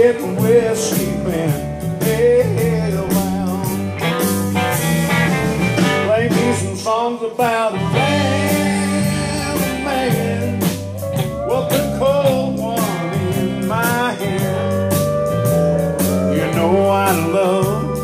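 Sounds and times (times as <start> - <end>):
person singing: 0.0 - 4.4, 5.8 - 18.0
pedal steel guitar: 0.0 - 6.6, 7.8 - 18.0
acoustic rhythm guitar: 0.0 - 6.8
bass: 0.0 - 18.0
drums: 0.0 - 18.0
electric lead guitar: 0.0 - 18.0.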